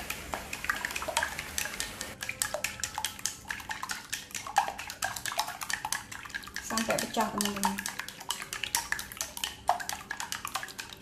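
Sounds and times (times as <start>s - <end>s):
utensil clicking against glass bowl: 0.5s - 11.0s.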